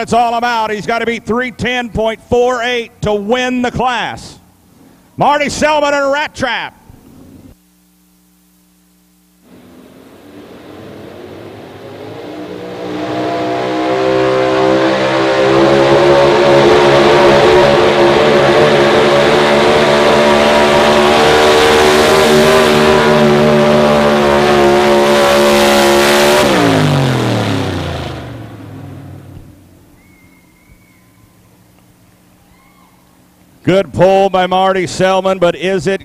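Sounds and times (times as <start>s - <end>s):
pickup truck engine at full throttle: 9.4s - 30.0s.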